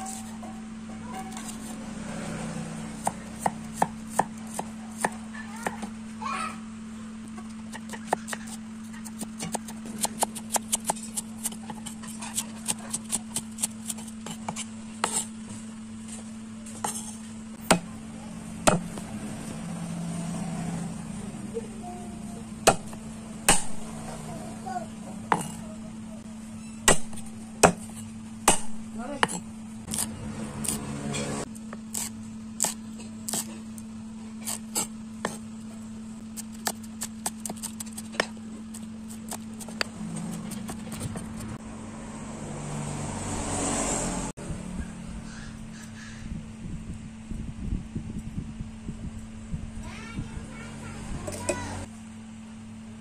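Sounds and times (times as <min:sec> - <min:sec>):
knife chopping on wooden board: 0:03.0 - 0:05.9, 0:07.7 - 0:15.3, 0:16.8 - 0:17.9, 0:18.6 - 0:19.1, 0:22.6 - 0:23.9, 0:25.3 - 0:25.6, 0:26.9 - 0:33.5, 0:36.4 - 0:41.6.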